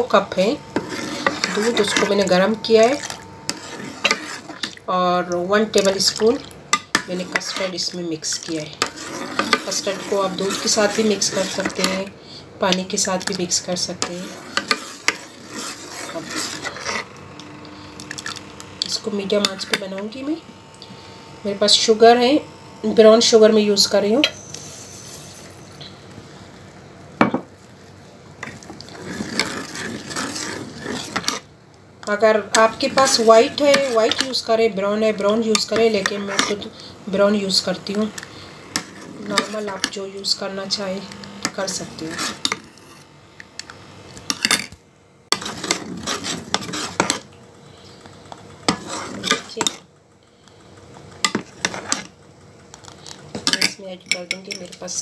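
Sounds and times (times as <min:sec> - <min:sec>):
spoon stirring in steel pot: 0:00.1 - 0:17.1, 0:18.0 - 0:20.2, 0:28.4 - 0:43.0, 0:45.3 - 0:47.3, 0:48.6 - 0:49.8, 0:51.2 - 0:52.1, 0:52.8 - 0:55.0.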